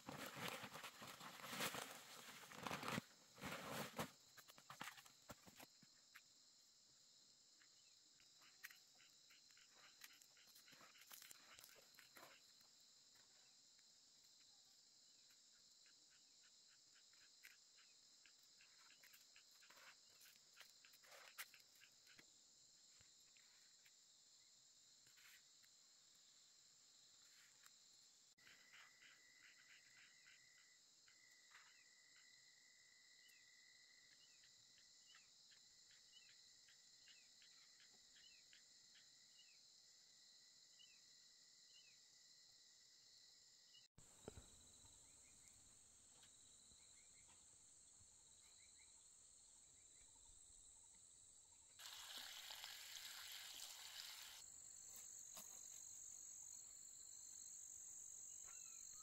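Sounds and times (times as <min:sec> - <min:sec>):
insects trilling: 0:07.7 - 0:13.6, 0:51.7 - 0:59.0.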